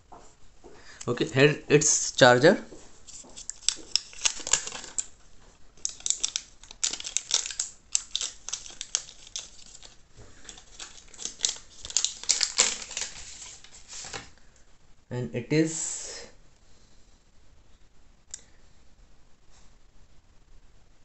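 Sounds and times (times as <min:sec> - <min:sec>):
plastic wrap crinkling and tearing: 0:03.0 - 0:05.2, 0:05.8 - 0:14.4.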